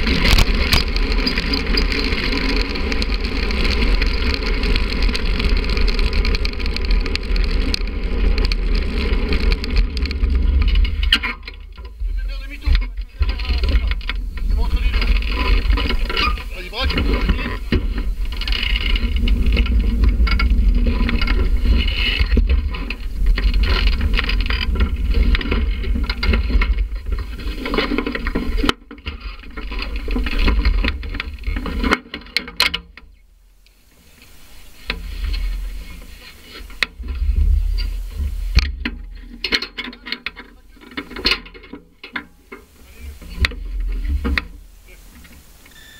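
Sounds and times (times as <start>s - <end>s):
wind buffeting microphone: 0.0s - 28.7s, 34.3s - 39.4s
knocks and clicks: 0.0s - 33.1s
rumble with clatter: 0.0s - 33.2s, 33.9s - 45.6s.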